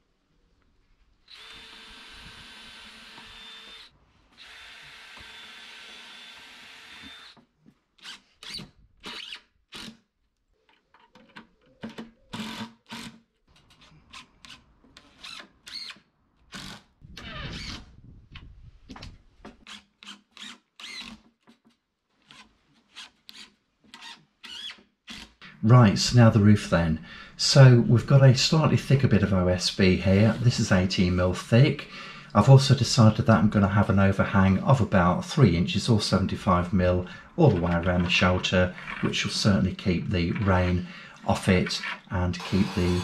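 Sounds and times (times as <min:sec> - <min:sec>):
cordless drill driving screws: 0:01.3 - 0:10.0, 0:12.3 - 0:13.2, 0:14.1 - 0:16.9, 0:19.6 - 0:21.3, 0:22.2 - 0:25.4, 0:41.8 - 0:43.0.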